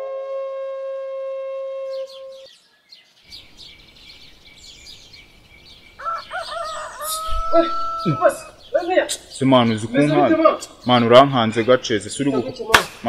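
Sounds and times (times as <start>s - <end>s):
flute long note: 0.0s - 2.4s
birds chirping: 1.9s - 13.0s
faint outdoor hiss: 2.5s - 13.0s
rooster crowing: 6.0s - 8.6s.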